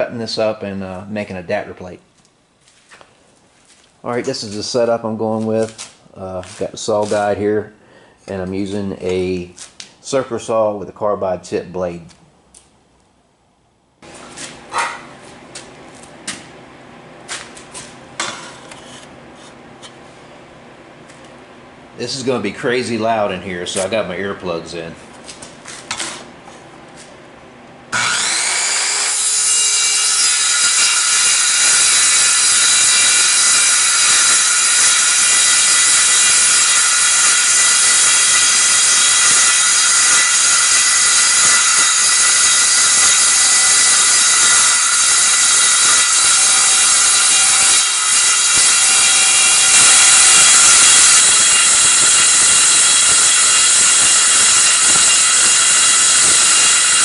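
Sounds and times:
circular saw cutting metal: 27.9s - 57.0s.

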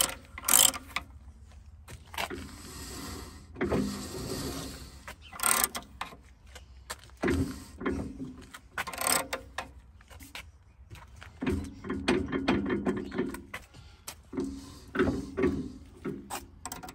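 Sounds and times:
ratchet wrench clicking: 0.0s - 1.1s, 5.4s - 5.8s, 8.9s - 9.4s.

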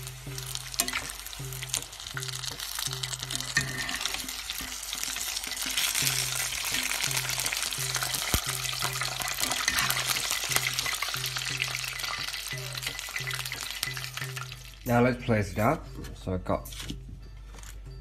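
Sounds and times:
food deep-frying in oil: 0.0s - 15.0s
metal spoon stirring: 0.4s - 14.8s.

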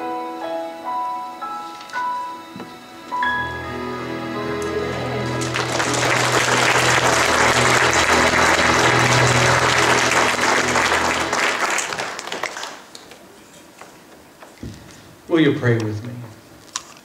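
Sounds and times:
held low chord: 0.1s - 12.2s
congregation applauding: 3.6s - 13.3s.

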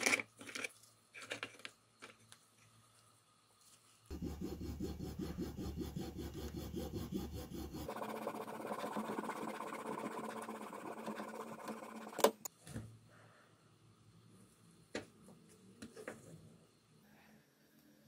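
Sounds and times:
hacksaw sawing: 4.1s - 12.4s.

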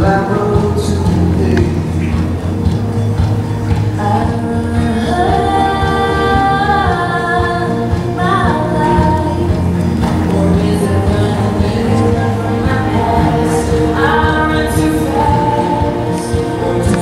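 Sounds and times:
woman singing long held notes: 4.0s - 17.0s.

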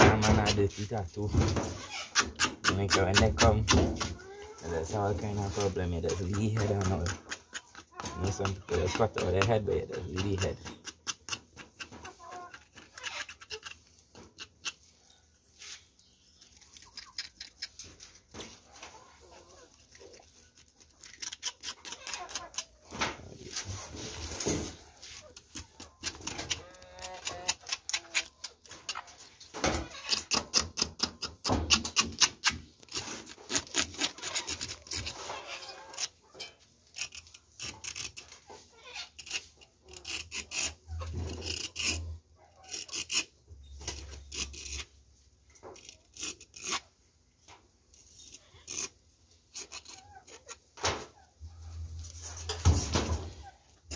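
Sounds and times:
knife scraping shell: 0.1s - 14.9s, 15.6s - 46.9s, 47.9s - 50.6s.

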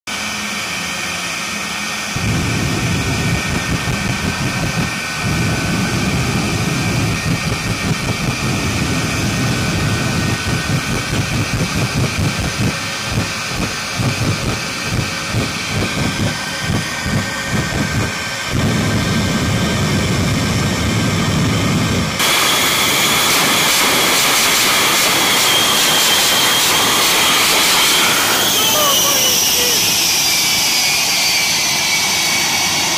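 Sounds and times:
jet engine high whine: 0.1s - 32.9s
afterburner rumble and blast: 0.8s - 32.9s.

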